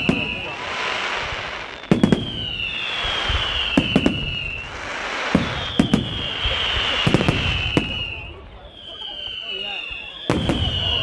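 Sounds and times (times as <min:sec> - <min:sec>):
falling firework whistles: 0:00.0 - 0:11.0
firework bangs: 0:00.0 - 0:11.0.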